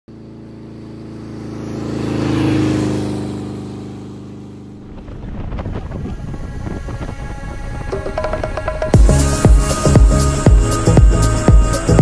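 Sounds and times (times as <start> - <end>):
vehicle engine passing by: 0.1 - 7.8
music with a beat: 7.9 - 12.0.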